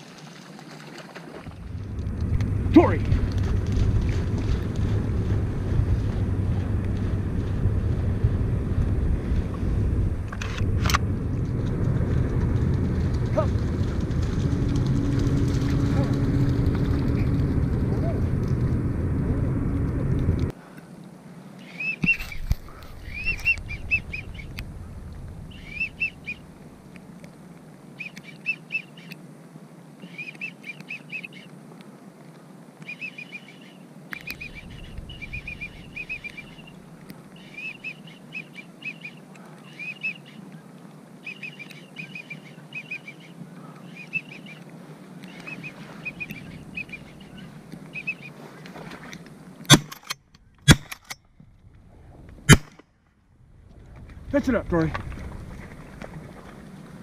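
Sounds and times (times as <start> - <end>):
low rumble: 1.4 - 20.6, 22.3 - 27.0, 34.3 - 37.0, 53.3 - 57.0
duck whistling: 23.0 - 24.5, 25.5 - 26.4, 34.2 - 36.8, 45.3 - 48.4.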